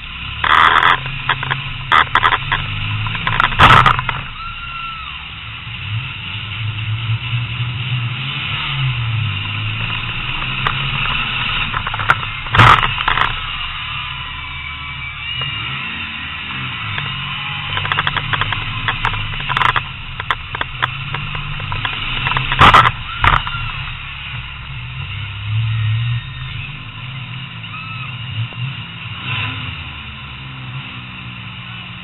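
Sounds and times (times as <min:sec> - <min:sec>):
sharp clicks and rattles: 0:00.0 - 0:04.4, 0:09.3 - 0:15.6, 0:16.4 - 0:25.6
car engine running at low revs: 0:00.0 - 0:32.0
loud sudden bangs: 0:10.2 - 0:14.4.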